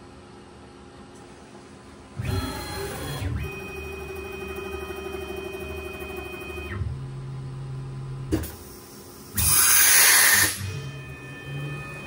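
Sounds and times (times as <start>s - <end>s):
machine drives whining: 9.3s - 12.0s.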